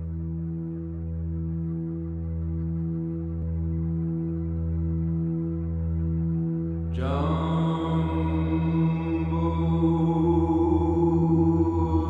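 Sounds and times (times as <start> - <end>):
low ambient drone: 0.0 - 12.0
deep male voice singing: 7.0 - 12.0.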